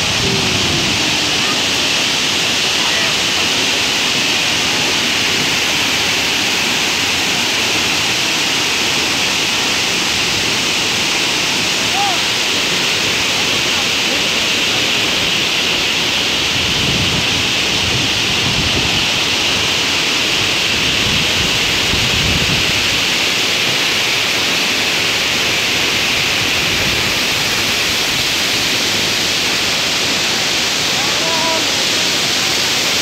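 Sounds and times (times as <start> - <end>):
waterfall rushing: 0.0 - 33.0.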